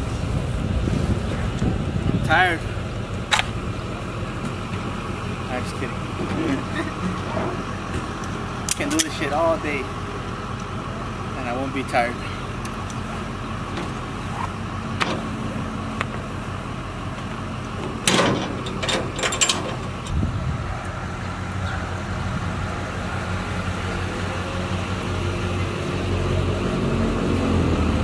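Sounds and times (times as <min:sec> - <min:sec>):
truck engine idling: 0:00.0 - 0:28.0
metal clanks and rattles: 0:06.1 - 0:09.5, 0:13.7 - 0:16.3, 0:17.1 - 0:20.2.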